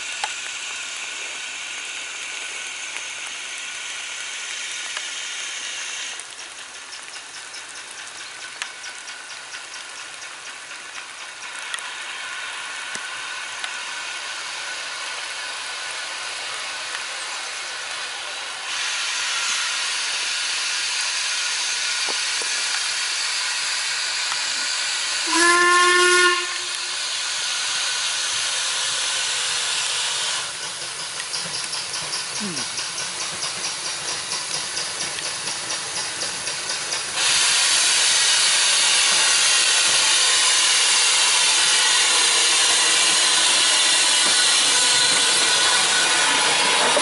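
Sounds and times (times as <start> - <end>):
steam locomotive hissing: 0.0 - 47.0
quick light ticks: 6.1 - 11.9, 30.4 - 37.4.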